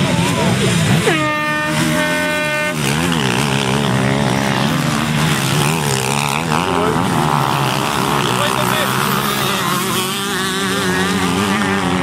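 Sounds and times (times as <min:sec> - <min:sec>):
dirt bike engine revving: 0:00.0 - 0:12.0
air horn blast: 0:00.9 - 0:04.8.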